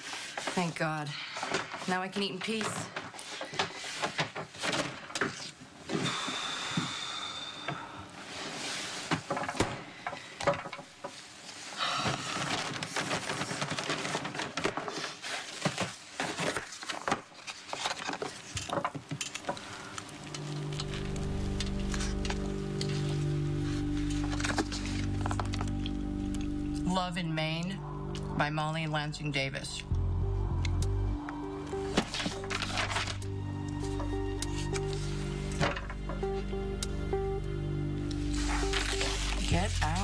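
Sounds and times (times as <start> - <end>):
paper bag rustling: 0.0 - 5.9, 10.9 - 27.1, 31.3 - 36.0, 38.2 - 40.0
music: 20.1 - 40.0.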